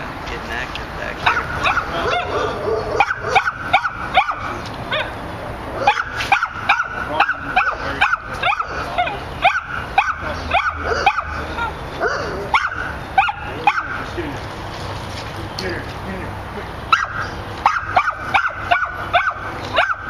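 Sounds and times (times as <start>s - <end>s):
dog barking: 1.2s - 5.2s, 5.8s - 11.4s, 12.0s - 14.0s, 16.9s - 20.0s.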